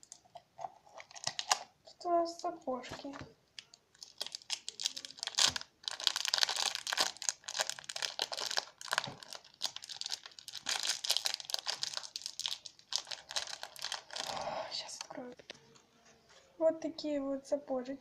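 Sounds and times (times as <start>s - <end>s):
plastic packet crinkling and tearing: 0.0s - 1.8s, 3.6s - 15.1s.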